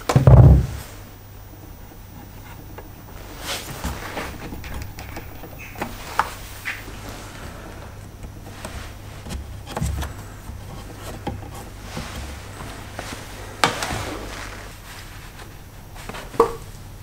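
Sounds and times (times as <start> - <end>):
rubber hose knocking on plastic: 0.1 - 0.8
rustling scrape: 1.7 - 16.4.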